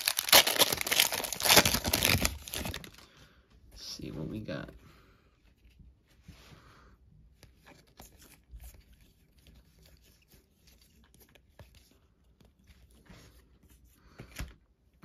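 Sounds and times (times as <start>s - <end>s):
cards rustling and clicking: 7.4s - 14.6s.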